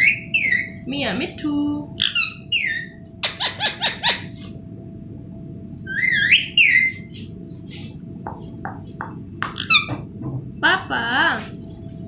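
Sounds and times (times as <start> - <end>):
parakeet whistling and chirping: 0.0 - 0.8, 2.0 - 4.4, 5.8 - 7.2, 8.4 - 10.0.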